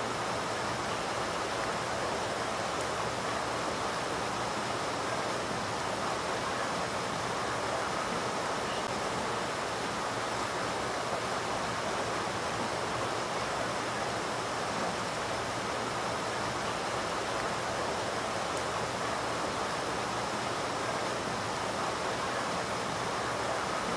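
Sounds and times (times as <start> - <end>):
stream rushing over rocks: 0.0 - 23.9.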